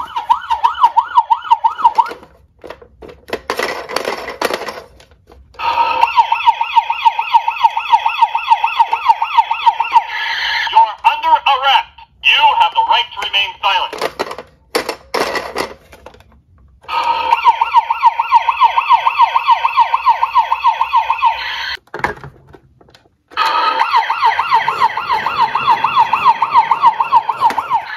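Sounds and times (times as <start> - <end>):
toy electronic siren yelping: 0.0 - 2.1, 5.6 - 11.5, 16.9 - 21.8, 23.4 - 27.9
plastic toy clicks and knocks: 1.8 - 5.5, 13.2 - 16.8.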